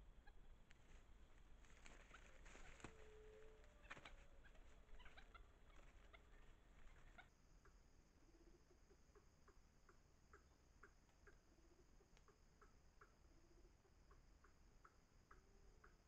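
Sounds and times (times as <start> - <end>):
crackles and rustles in leaves: 0.3 - 7.3.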